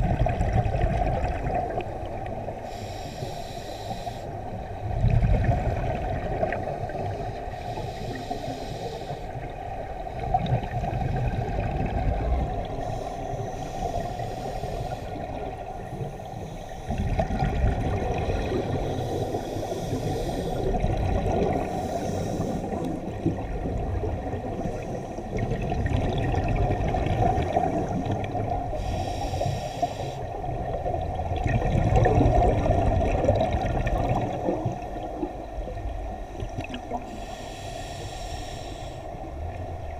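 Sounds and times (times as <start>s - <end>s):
bubbles gurgling underwater: 0.0s - 2.4s, 4.9s - 7.2s, 10.2s - 12.8s, 16.9s - 18.9s, 20.7s - 21.8s, 22.7s - 28.8s, 30.4s - 37.1s
diver breathing through a regulator: 2.6s - 4.9s, 6.9s - 9.7s, 10.7s - 23.3s, 24.4s - 25.6s, 27.1s - 30.5s, 36.2s - 39.4s.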